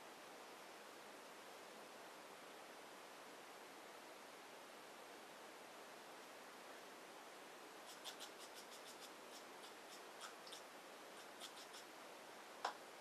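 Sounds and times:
paintbrush strokes on paper: 7.8 - 11.9.

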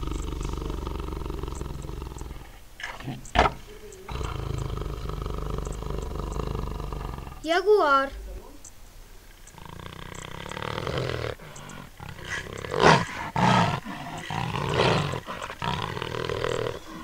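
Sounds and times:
jaguar roaring: 0.0 - 7.6, 9.5 - 17.0.

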